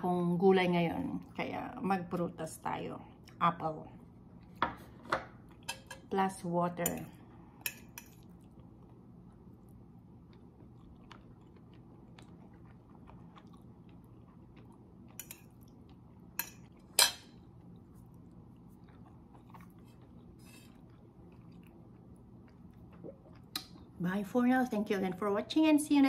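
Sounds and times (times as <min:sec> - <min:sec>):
person chewing: 0:08.2 - 0:24.0.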